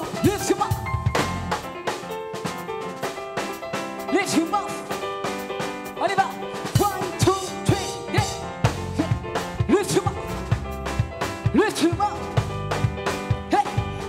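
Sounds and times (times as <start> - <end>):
band playing worship music: 0.0 - 14.0
drum kit beat: 0.0 - 14.0.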